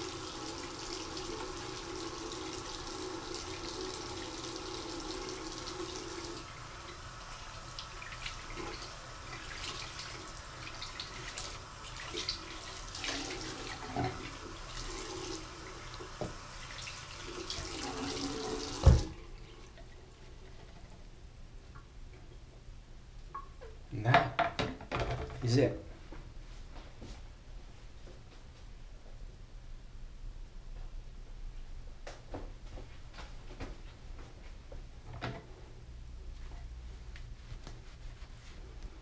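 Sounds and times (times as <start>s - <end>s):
water running from faucet: 0.0s - 19.8s.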